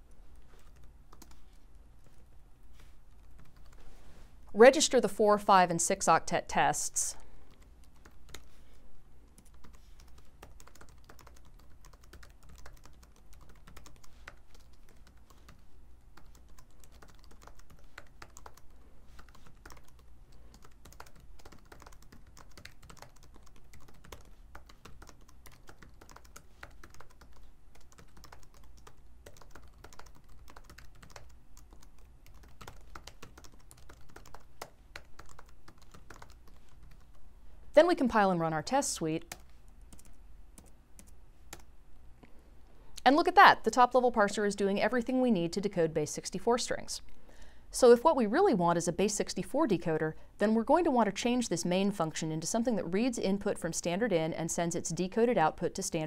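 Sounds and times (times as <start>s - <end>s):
faint low hum: 0.0s - 56.0s
keyboard typing clicks: 16.2s - 37.2s.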